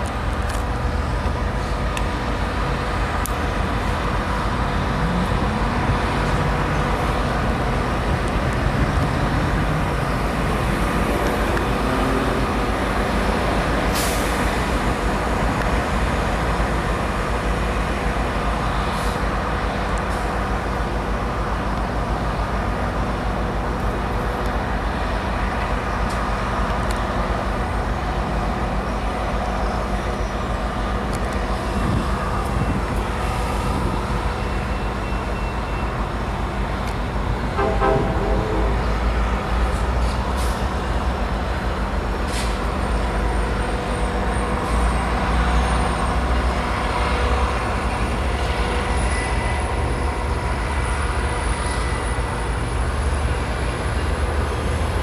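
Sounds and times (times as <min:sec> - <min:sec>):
diesel locomotives idling: 0:00.0 - 0:55.0
hiss of released air: 0:13.9 - 0:14.6, 0:42.3 - 0:42.7.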